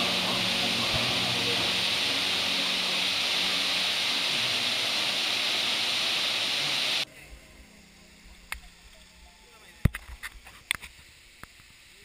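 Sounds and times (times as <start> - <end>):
waterfall roaring: 0.0 - 7.0.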